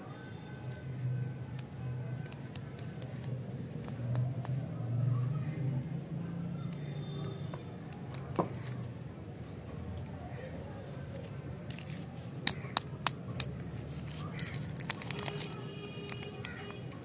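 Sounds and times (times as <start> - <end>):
lollipop wrapper crinkling: 11.2 - 17.0.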